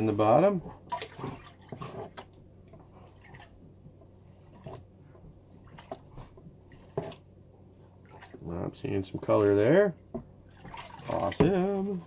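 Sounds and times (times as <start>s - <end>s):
water sloshing and dripping: 0.0s - 12.0s
soft water splashes: 0.6s - 3.6s, 8.0s - 9.7s, 10.4s - 12.0s.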